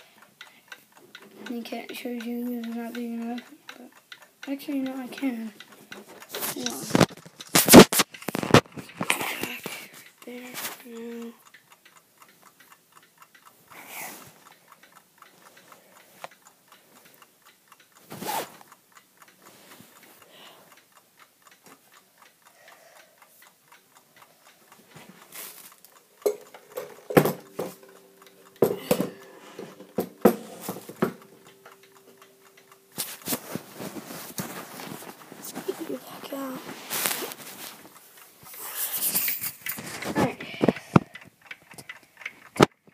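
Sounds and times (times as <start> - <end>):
pendulum clock ticking: 0.0 - 42.9.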